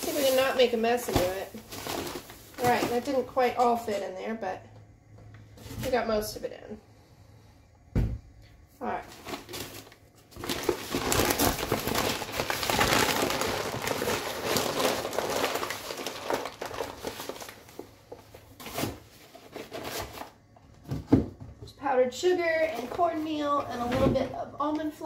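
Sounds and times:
plastic bag crinkling: 0.0 - 4.0, 8.8 - 20.4.

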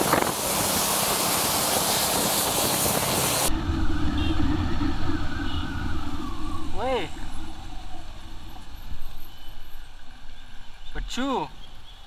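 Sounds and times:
wind and rain hiss: 0.0 - 11.6
tyres on wet road: 0.0 - 12.0
motorcycle engine running: 2.5 - 10.0.

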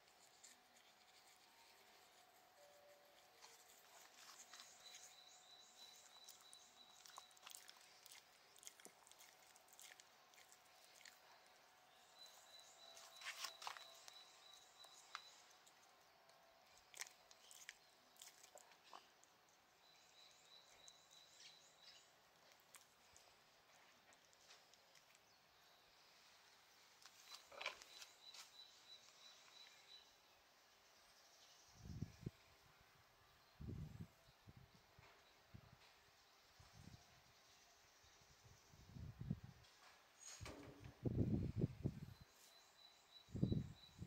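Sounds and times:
faint high steady tone: 0.0 - 7.4
dog chewing on brush: 3.2 - 15.8, 16.6 - 19.3.

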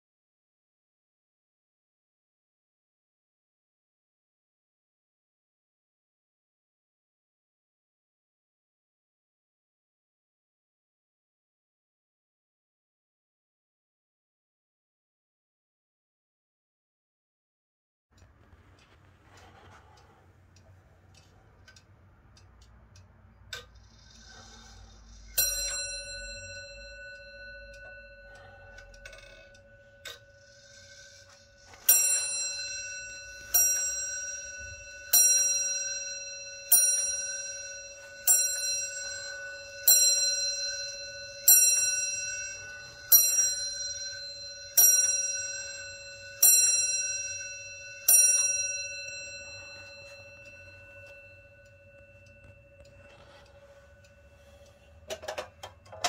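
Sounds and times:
faint clock ticking: 18.2 - 56.0
clock bell striking: 24.3 - 56.0.

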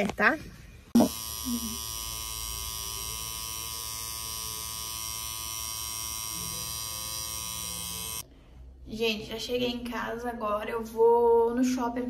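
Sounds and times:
tattoo machine buzzing: 0.9 - 8.2.

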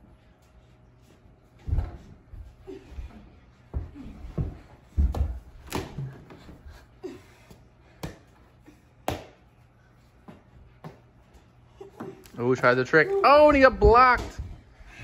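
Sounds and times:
hands slapping a ball: 9.0 - 9.4.

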